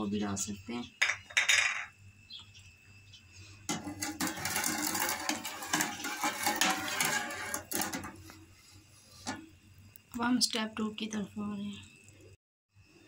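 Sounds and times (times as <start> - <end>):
spoon stirring in metal pot: 3.7 - 9.4.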